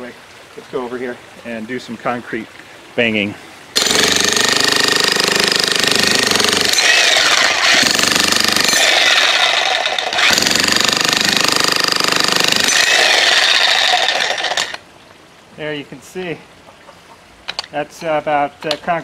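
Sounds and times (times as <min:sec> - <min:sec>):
jackhammer pounding concrete: 0:03.8 - 0:14.8.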